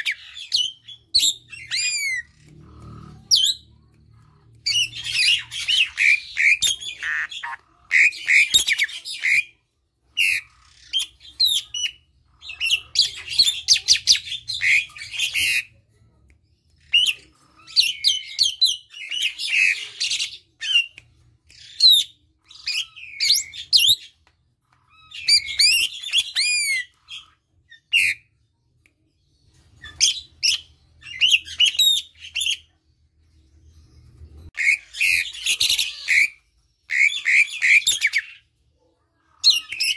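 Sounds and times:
bird whistling and chattering: 0.0 - 2.6, 4.6 - 9.6, 16.9 - 24.1, 25.0 - 28.2.

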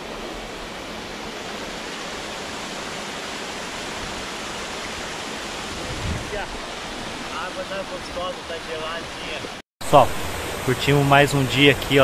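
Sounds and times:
waterfall splashing over rock: 0.0 - 12.0.

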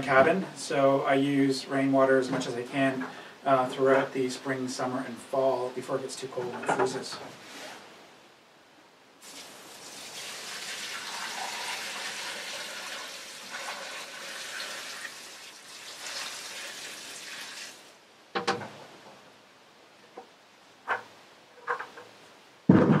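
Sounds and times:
water pouring into metal pot: 9.2 - 17.8
sharp knocks: 18.4 - 18.8, 22.7 - 23.0.

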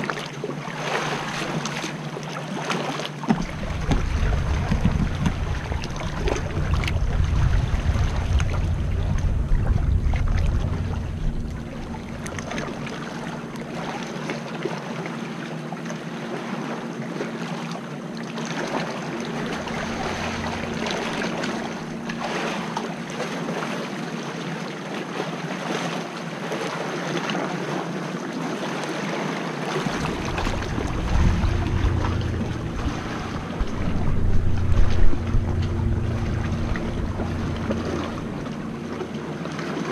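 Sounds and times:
paddle blades splashing: 0.0 - 15.6, 16.3 - 39.9
water sloshing against hull: 0.0 - 39.9
wind buffeting microphone: 3.3 - 13.8, 19.2 - 22.4, 29.7 - 39.9.

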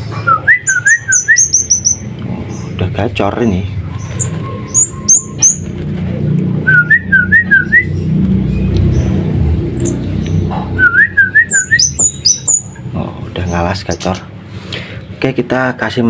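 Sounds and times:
songbird whistling and chirping: 0.0 - 2.8, 3.9 - 5.7, 6.6 - 9.1, 9.8 - 12.9
low background rumble: 1.9 - 14.5.

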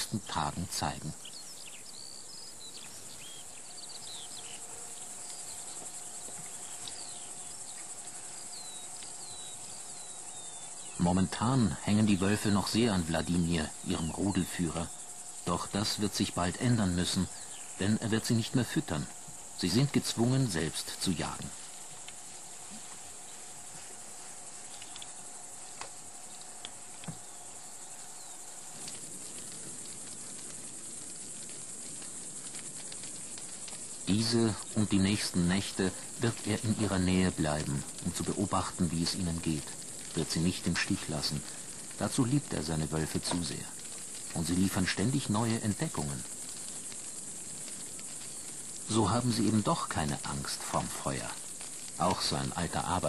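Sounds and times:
faint steady hum: 0.0 - 53.0
insects chirring: 0.0 - 53.0
soft ticks: 22.0 - 22.3, 24.7 - 27.2, 28.8 - 34.0.

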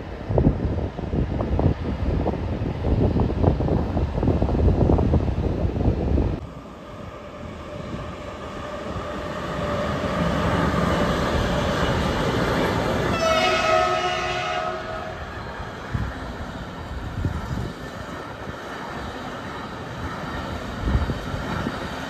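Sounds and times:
wind noise on microphone: 0.0 - 6.5, 7.4 - 19.0, 19.9 - 22.0
freight train rumbling past: 0.0 - 22.0
train horn: 13.0 - 15.4.

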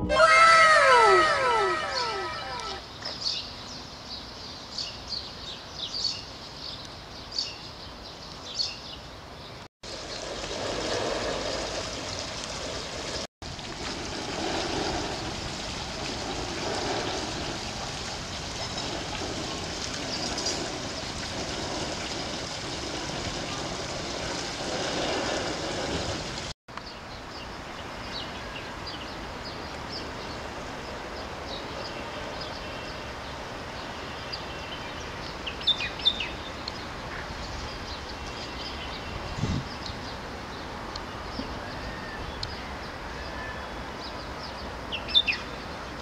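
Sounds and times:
fountain water splashing into pool: 9.8 - 26.5.

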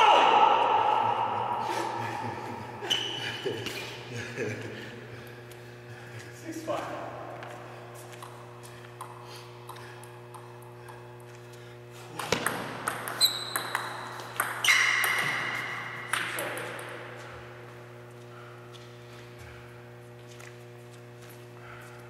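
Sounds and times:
electrical hum: 0.0 - 22.0
table tennis ball bouncing: 12.1 - 17.1.

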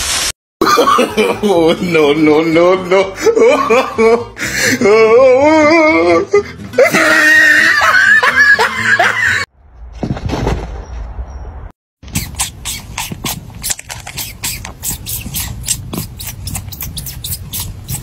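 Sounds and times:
cat chewing and sucking paw: 12.0 - 18.0.

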